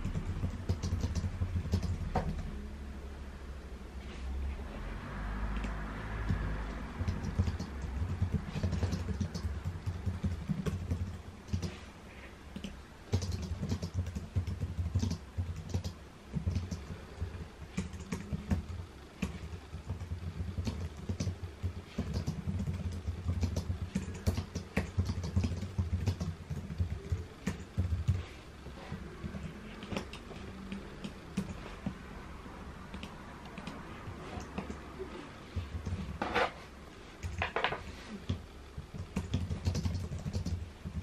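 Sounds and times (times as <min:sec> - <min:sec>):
keyboard typing clicks: 0:00.0 - 0:02.5, 0:05.6 - 0:11.8, 0:12.5 - 0:28.3, 0:28.9 - 0:32.0, 0:32.9 - 0:34.9, 0:38.3 - 0:41.0.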